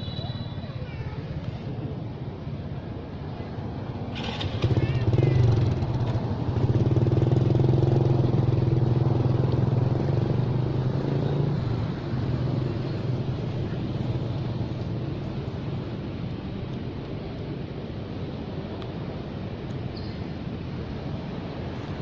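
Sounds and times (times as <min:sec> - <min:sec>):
small motorcycle engine running: 0:04.2 - 0:10.3.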